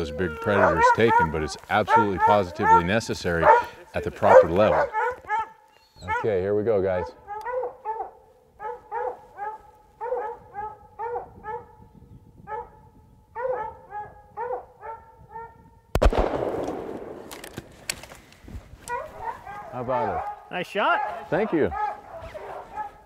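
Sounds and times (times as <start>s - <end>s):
hounds barking: 0.0s - 15.6s, 18.8s - 23.0s
loud pistol shot echoing: 16.0s - 17.8s.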